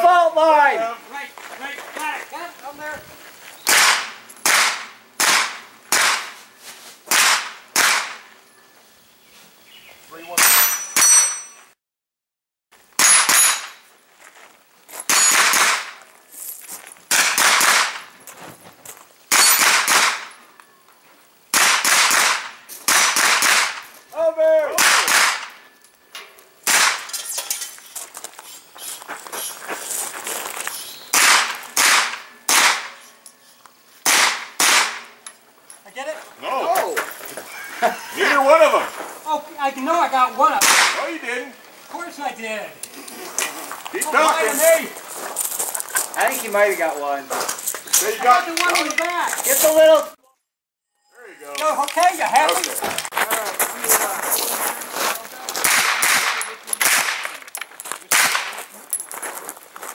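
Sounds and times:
gunshots: 3.7 - 6.4, 7.1 - 8.3, 15.1 - 16.0, 17.1 - 18.1, 19.3 - 20.3, 21.5 - 23.9, 24.8 - 25.6, 26.6 - 27.1, 31.1 - 33.0, 34.0 - 35.2, 40.6 - 41.1, 55.6 - 57.4, 58.1 - 58.7
steel targets ringing: 10.4 - 11.7, 13.0 - 13.8, 15.1 - 15.6, 19.3 - 19.8.

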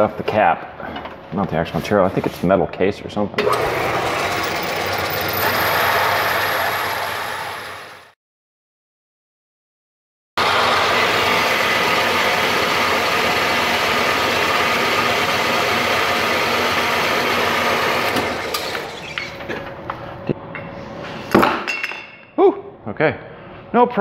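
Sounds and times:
bandsaw cutting metal: 3.4 - 8.1, 10.4 - 19.4.

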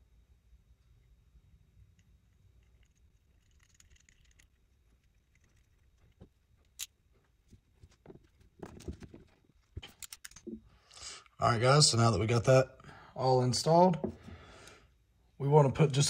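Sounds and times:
small parts ticking and rustling: 1.8 - 10.7.

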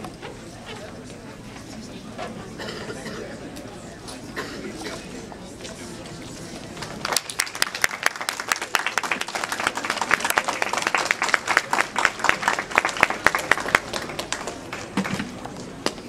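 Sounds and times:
audience clapping and applauding: 6.8 - 15.2.

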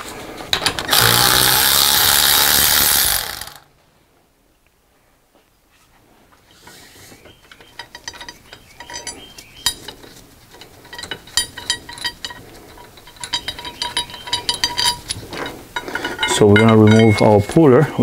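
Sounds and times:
metal tools clinking: 6.6 - 17.9.

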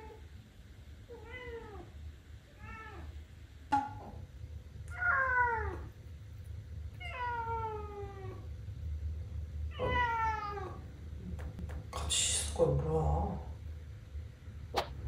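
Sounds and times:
kitten meowing: 9.7 - 10.8.

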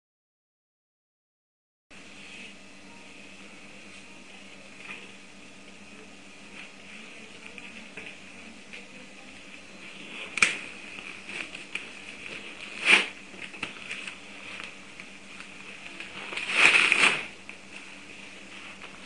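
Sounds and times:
paper ripping: 10.0 - 14.8, 15.7 - 17.4.

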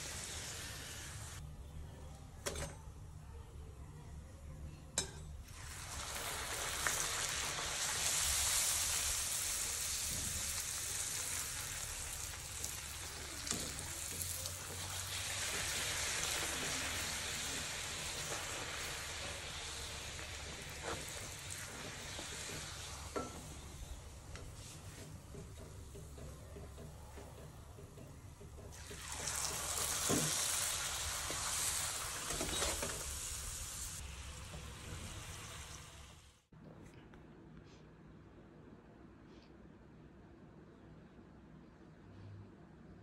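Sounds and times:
dough sizzling in hot oil: 0.0 - 1.4, 5.4 - 25.8, 28.6 - 36.5.

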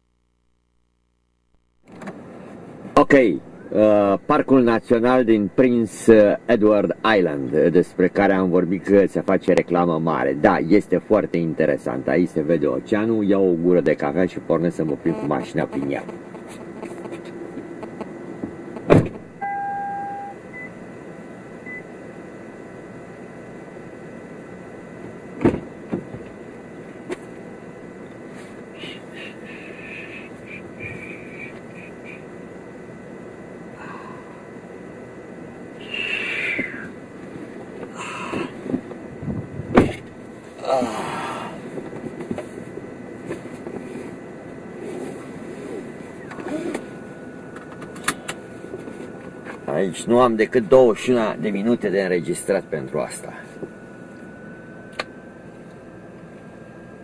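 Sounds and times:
electronic warning tone: 14.8 - 20.8, 28.8 - 32.4
dashboard beeps: 19.4 - 20.7.

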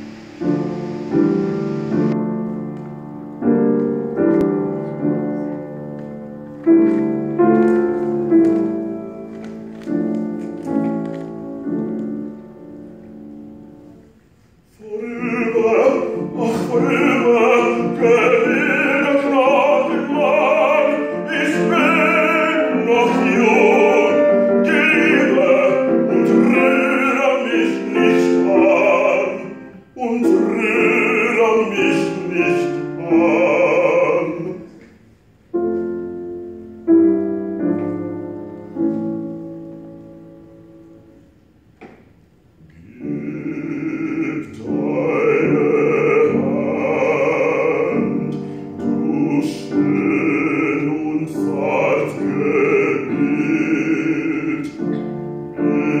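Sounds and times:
grand piano chords: 0.0 - 56.0
man singing classically: 14.6 - 35.0, 42.6 - 56.0.

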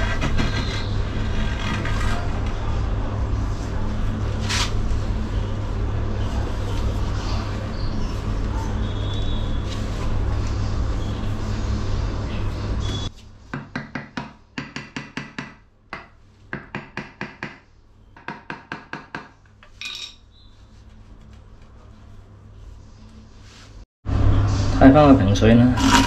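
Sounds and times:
loud rumble with low hum: 0.0 - 13.1, 24.1 - 26.0.

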